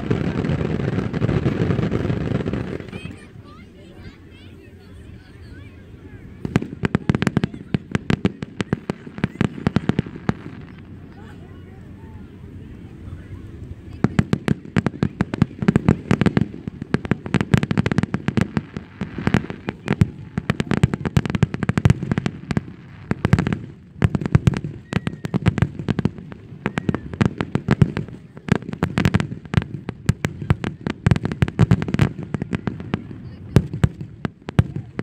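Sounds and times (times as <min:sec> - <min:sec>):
fireworks bursting: 0:00.0 - 0:11.6, 0:13.4 - 0:35.0.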